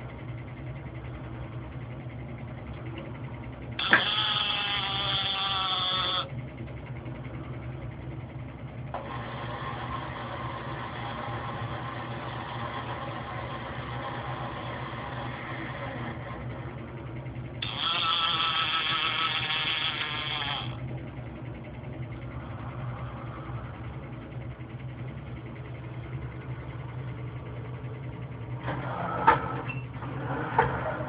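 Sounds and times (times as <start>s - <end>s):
steady low hum: 0.0s - 31.0s
robot arm motors whining: 3.8s - 6.3s, 8.9s - 16.8s, 17.6s - 20.8s.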